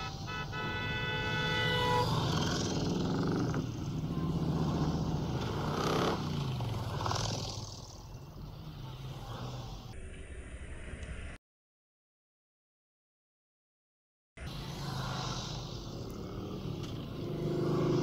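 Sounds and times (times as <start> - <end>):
horn: 0.0 - 2.6
motorcycles riding past: 1.2 - 9.9, 14.6 - 18.0.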